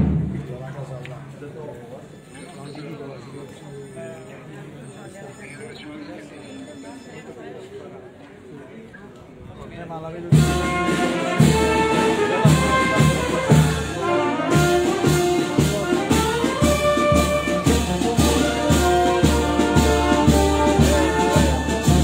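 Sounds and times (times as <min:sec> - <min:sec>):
brass band playing a march: 0:10.3 - 0:22.0.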